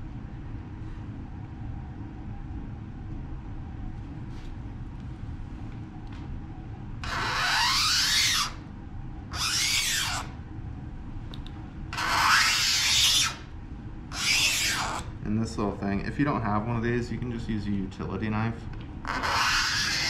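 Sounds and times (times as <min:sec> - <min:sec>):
knife scratching acrylic sheet: 0:07.0 - 0:08.6, 0:09.3 - 0:10.3, 0:12.0 - 0:13.5, 0:14.1 - 0:15.1, 0:19.0 - 0:20.0.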